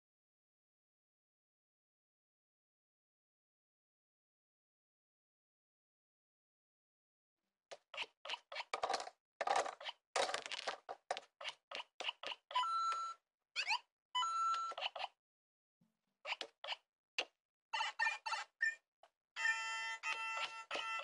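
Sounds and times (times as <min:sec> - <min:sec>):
electronic game chirps and beeps: 0:12.1 - 0:15.2, 0:17.7 - 0:18.8, 0:19.4 - 0:21.0.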